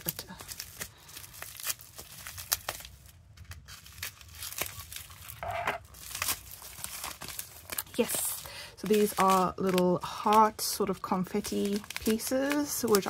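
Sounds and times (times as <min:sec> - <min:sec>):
plastic packaging crinkling: 0:00.0 - 0:13.0
scissors cutting plastic: 0:08.8 - 0:13.0.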